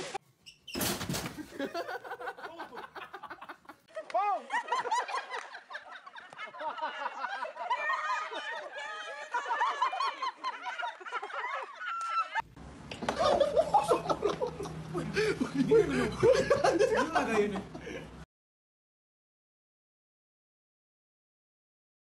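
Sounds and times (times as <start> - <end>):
women laughing: 1.4 - 12.4, 13.0 - 18.2
steady low hum: 12.5 - 18.2.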